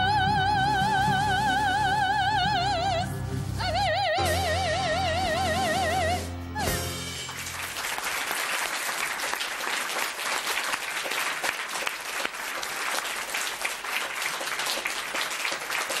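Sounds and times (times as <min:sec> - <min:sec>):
audience applause: 0:07.2 - 0:16.0.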